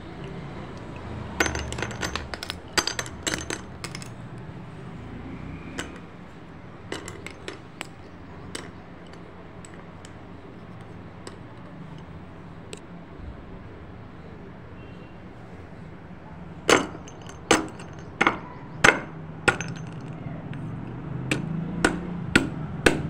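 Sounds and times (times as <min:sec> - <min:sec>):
sticks clattering into stone bowl: 0:00.8 - 0:04.3, 0:05.8 - 0:06.1, 0:06.9 - 0:12.1, 0:16.7 - 0:23.0.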